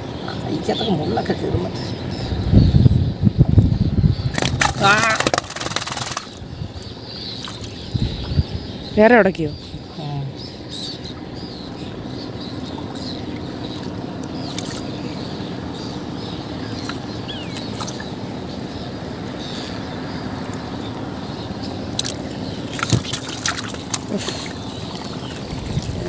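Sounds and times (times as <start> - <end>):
knocks and splashes: 4.3 - 6.5, 13.8 - 15.0, 16.8 - 18.2, 21.9 - 26.0
water sloshing and dripping: 4.3 - 8.3, 12.7 - 19.2, 21.6 - 26.0.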